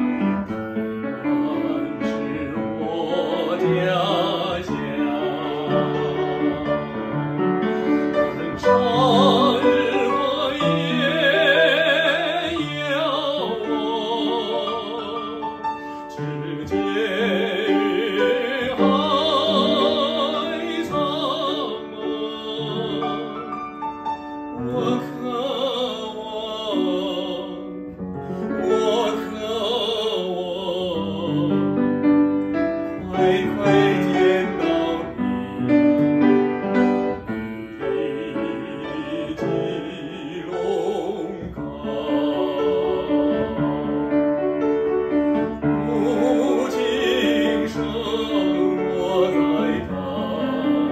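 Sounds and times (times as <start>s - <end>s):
piano accompaniment: 0.0s - 50.9s
man singing operatically: 0.1s - 23.8s, 24.5s - 44.6s, 45.2s - 50.9s.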